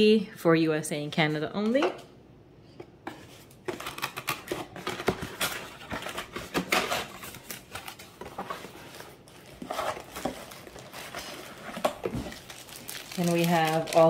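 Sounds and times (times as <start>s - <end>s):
cardboard scraping and rustling: 3.0s - 12.7s
hands touching bubble wrap: 12.3s - 14.0s.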